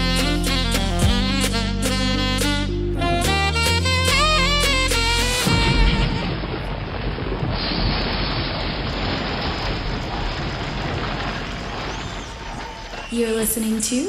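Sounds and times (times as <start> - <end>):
saxophone music: 0.0 - 6.6
arena crowd cheering and applauding: 10.3 - 13.5.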